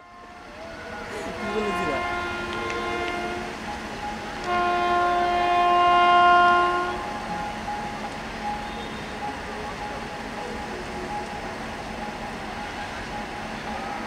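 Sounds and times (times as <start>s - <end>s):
locomotive air horn blast: 0.0s - 3.6s, 4.4s - 7.1s.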